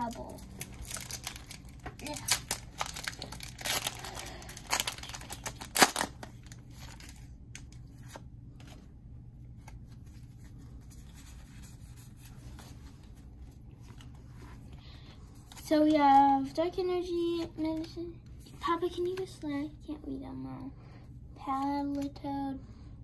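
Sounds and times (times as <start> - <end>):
foil wrapper tearing: 0.0 - 7.3
faint rustles of cards: 0.0 - 19.8.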